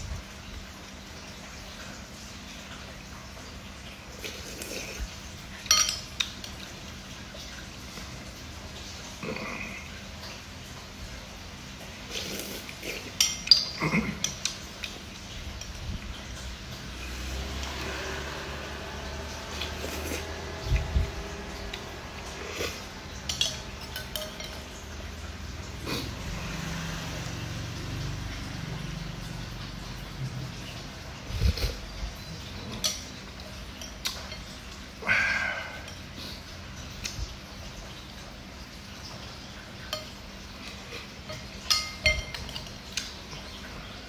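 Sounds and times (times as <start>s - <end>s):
spoon clinking against glass bowl: 5.6s - 6.6s, 13.1s - 14.6s, 22.6s - 24.9s, 39.8s - 43.2s.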